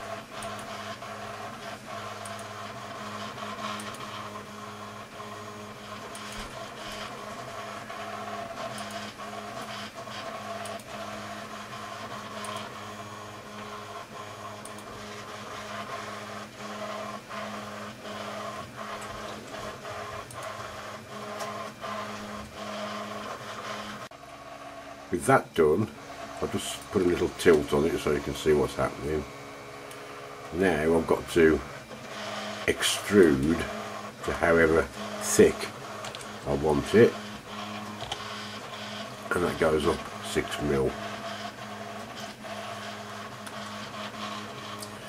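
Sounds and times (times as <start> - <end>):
machine hum: 0.0 - 45.0
computer mouse clicks: 0.4 - 0.8, 2.2 - 2.6, 8.7 - 9.8, 12.3 - 12.7, 14.6 - 14.9, 44.6 - 45.0.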